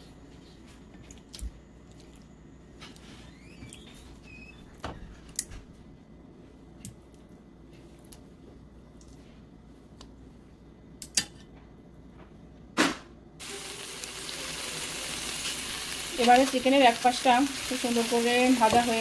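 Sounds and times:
short squeaks: 0:03.2 - 0:04.8.

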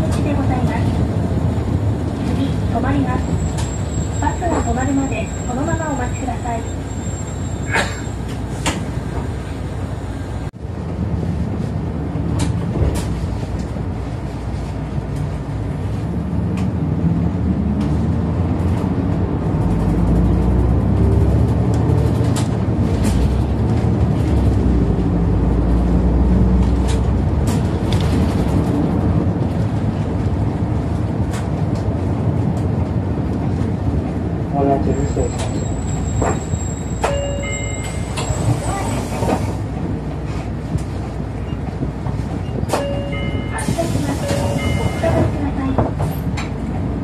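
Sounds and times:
bus engine rumble: 0:00.0 - 0:47.0.

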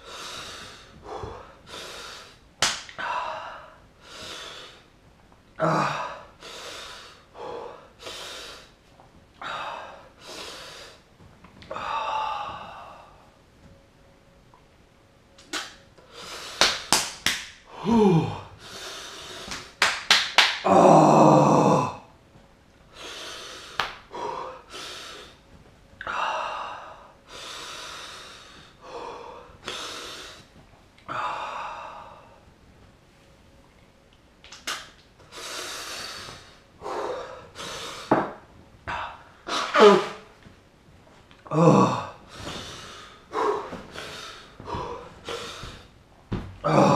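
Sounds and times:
man breathing hard and gasping: 0:00.0 - 0:02.4, 0:05.6 - 0:08.8, 0:11.7 - 0:13.3, 0:41.5 - 0:46.0.

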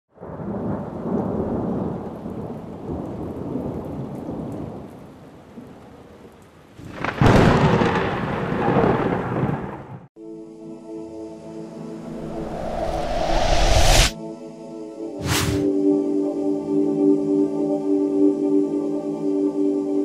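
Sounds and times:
steady rain: 0:00.2 - 0:09.9
rolling thunder: 0:06.8 - 0:10.0
sharp thunderclap: 0:06.9 - 0:09.8.

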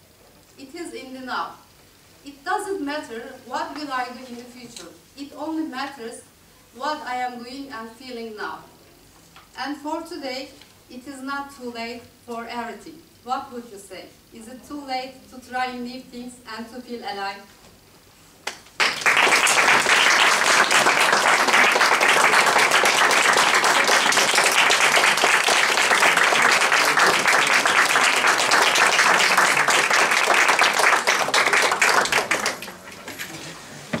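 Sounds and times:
small group applauding: 0:18.4 - 0:33.0.

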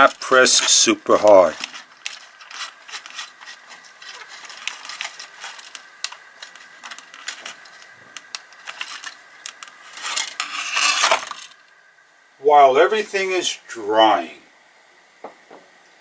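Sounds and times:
handling rustle: 0:00.0 - 0:11.7.

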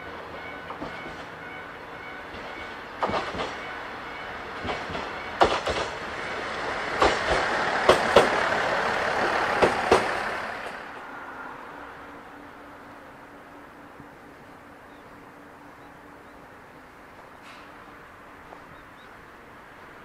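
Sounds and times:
railcar running past: 0:00.0 - 0:20.0
wheels clacking over rail joints: 0:00.2 - 0:11.0.

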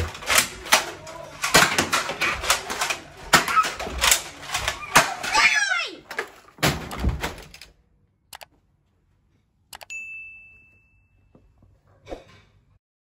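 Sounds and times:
bright bell ding: 0:09.9 - 0:11.4.

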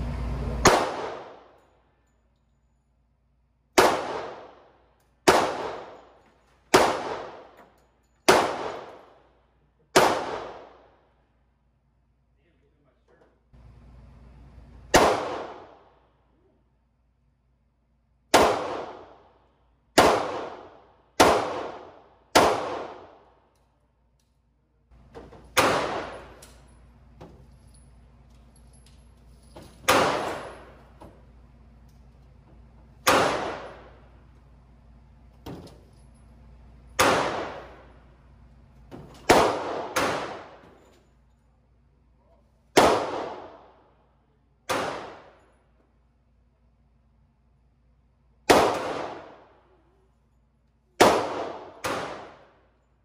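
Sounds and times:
handgun shots with ringing echo: 0:00.6 - 0:01.6, 0:03.7 - 0:09.2, 0:09.9 - 0:10.8, 0:14.9 - 0:15.8, 0:18.3 - 0:19.3, 0:20.0 - 0:23.3, 0:25.2 - 0:26.7, 0:29.6 - 0:31.2, 0:33.0 - 0:34.1, 0:37.0 - 0:38.0, 0:38.9 - 0:40.9, 0:42.7 - 0:43.8, 0:44.7 - 0:45.5, 0:48.5 - 0:49.6, 0:51.0 - 0:52.6.

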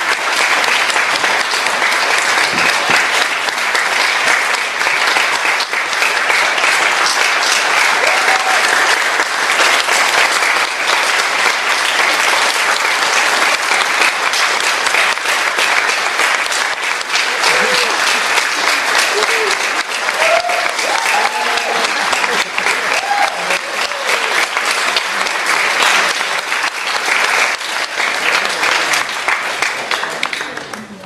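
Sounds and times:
audience applauding: 0:00.0 - 0:31.0.

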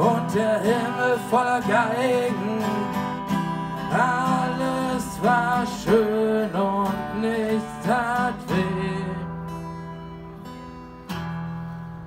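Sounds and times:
man singing: 0:00.0 - 0:09.4
acoustic guitar strumming: 0:00.0 - 0:12.0.

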